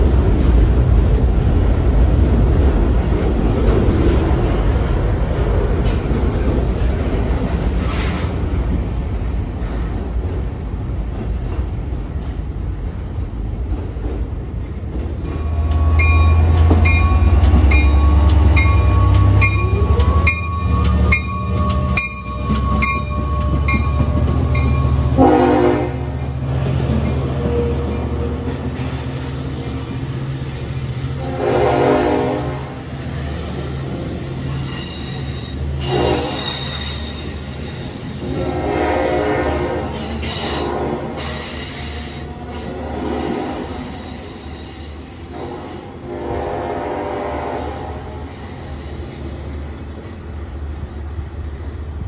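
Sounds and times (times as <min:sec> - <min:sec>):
diesel train rumble: 0:00.0 - 0:52.0
crossing bell ringing: 0:15.3 - 0:28.4.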